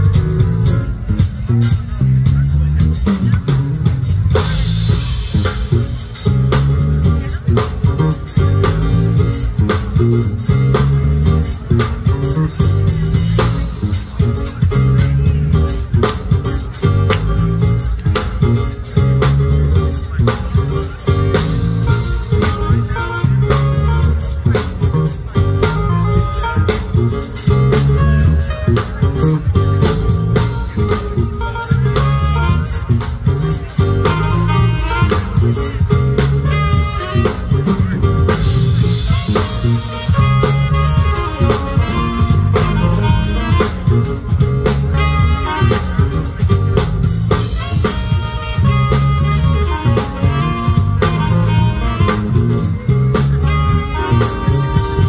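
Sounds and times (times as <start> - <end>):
drum kit steady beat: 0.0 - 55.0
electric guitar: 2.6 - 55.0
tenor saxophone melody: 21.0 - 55.0.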